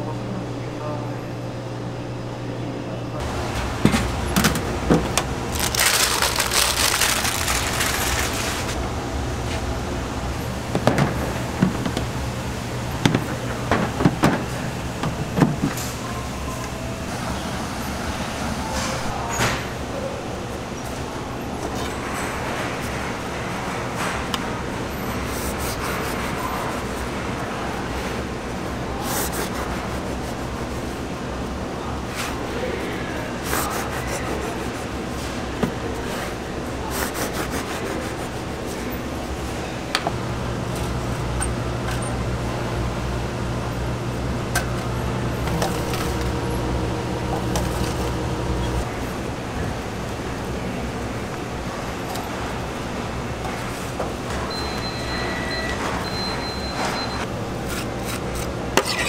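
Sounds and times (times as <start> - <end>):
low kitchen hum: 0.0 - 59.0
paper rustling: 4.0 - 8.8, 45.5 - 46.4.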